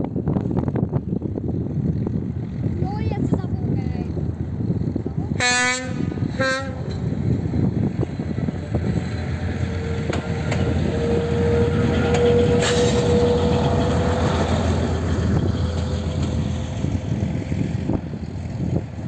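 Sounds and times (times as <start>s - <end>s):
train rumbling past: 0.0s - 19.0s
train wheels clacking: 7.9s - 17.7s.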